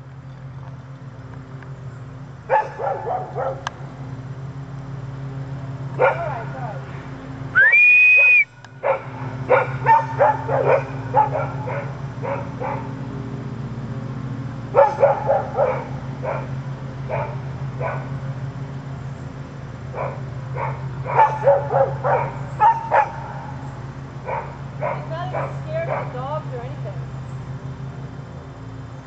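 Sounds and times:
dog barking: 0:02.5 - 0:03.7, 0:06.0 - 0:06.5, 0:08.8 - 0:12.9, 0:14.7 - 0:18.1, 0:19.9 - 0:23.6, 0:24.2 - 0:26.4.

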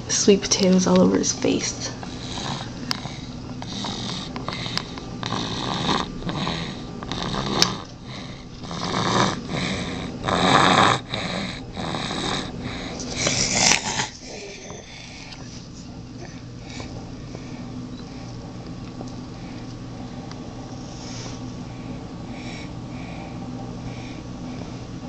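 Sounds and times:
baby snoring: 0:02.1 - 0:15.3.

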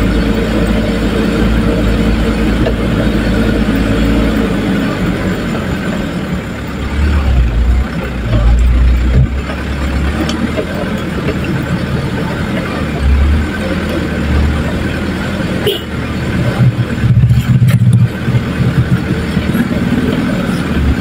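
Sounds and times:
vehicle engine rumbling: 0:00.0 - 0:21.0
vehicle knocks and rattles: 0:00.1 - 0:21.0.

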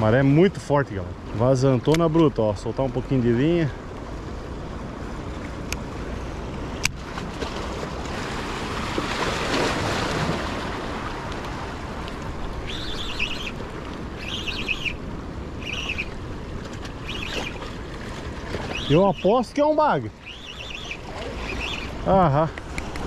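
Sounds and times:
water noise: 0:00.0 - 0:23.0
wind: 0:00.0 - 0:23.0
bird chirping: 0:12.6 - 0:13.6, 0:14.2 - 0:15.0, 0:15.6 - 0:16.2, 0:17.0 - 0:17.6, 0:18.7 - 0:22.0.

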